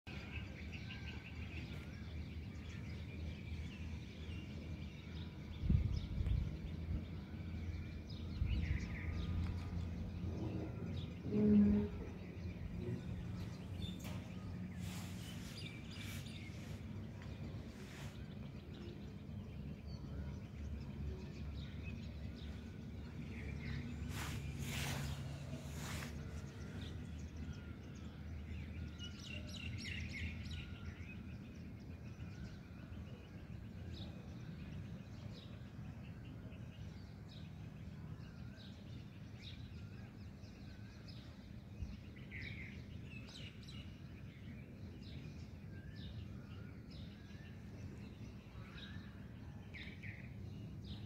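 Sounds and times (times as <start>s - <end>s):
faint bird chirps: 5.0s - 28.5s.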